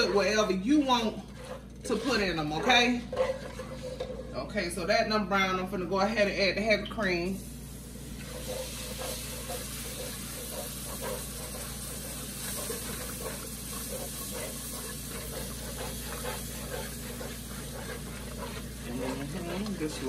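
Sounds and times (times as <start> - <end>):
cream sizzling in hot roux: 7.4 - 20.0.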